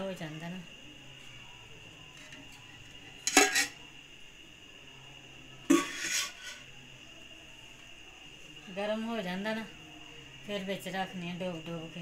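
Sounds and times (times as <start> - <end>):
utensils clanking on frying pan: 3.2 - 3.8, 5.7 - 6.6.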